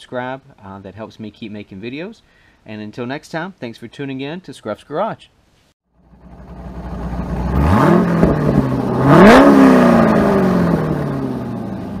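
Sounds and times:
car engine accelerating: 6.0s - 12.0s.

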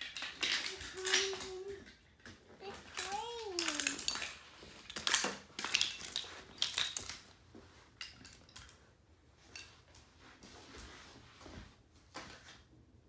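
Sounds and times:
toy trains clattering together: 0.0s - 7.3s, 8.0s - 8.8s.

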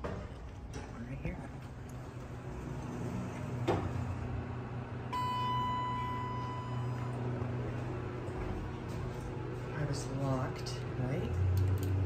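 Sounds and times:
low steady hum: 0.1s - 12.0s
elevator signal tone: 5.1s - 7.6s.

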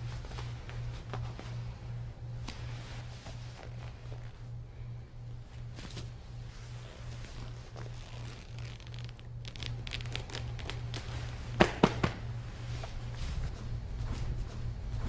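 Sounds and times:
feet shuffling on a mat: 0.0s - 4.5s, 12.4s - 15.0s
steady low hum: 0.0s - 15.0s
jackets rustling: 5.6s - 15.0s.

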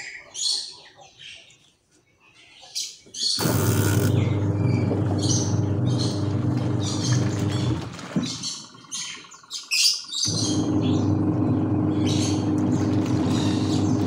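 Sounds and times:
birds chirping: 0.0s - 14.0s
washing machine motor churning: 3.4s - 8.4s, 10.2s - 14.0s.

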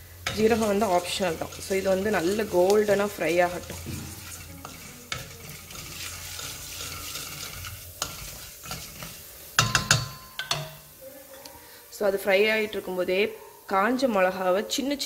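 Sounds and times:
seeds sizzling in hot oil: 0.0s - 15.0s
wooden spatula scraping pan: 0.2s - 9.6s.

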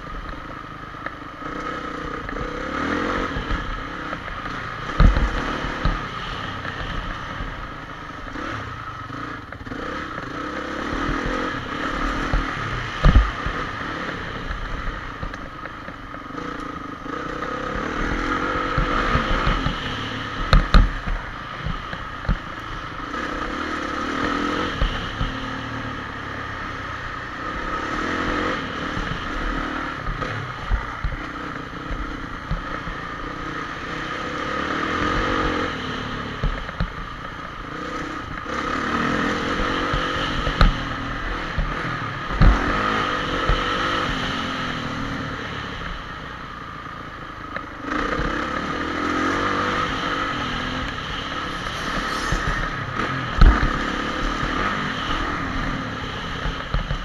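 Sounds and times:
motocross engine revving: 47.8s - 57.0s.

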